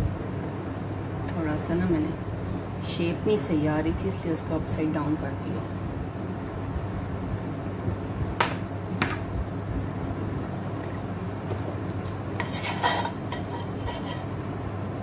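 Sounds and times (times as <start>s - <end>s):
metal scraping on plastic: 12.4s - 14.4s.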